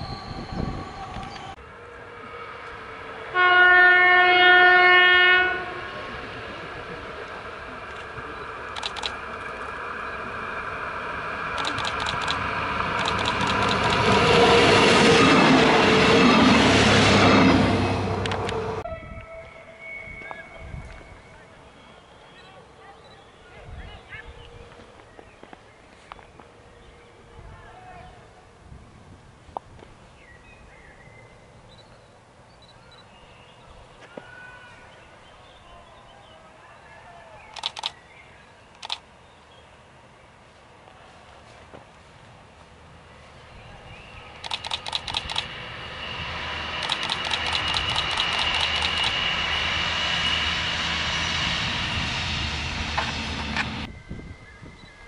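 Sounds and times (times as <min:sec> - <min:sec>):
birds chirping and whistling: 0:00.0 - 0:01.5, 0:19.4 - 0:23.4
diesel train approaching: 0:00.0 - 0:27.4, 0:37.5 - 0:55.0
sharp clicks of train wheels: 0:08.7 - 0:09.7, 0:11.5 - 0:14.4, 0:18.2 - 0:18.6, 0:37.5 - 0:38.0, 0:38.7 - 0:39.1, 0:44.3 - 0:45.6, 0:46.7 - 0:49.5
low rumble: 0:45.1 - 0:54.4.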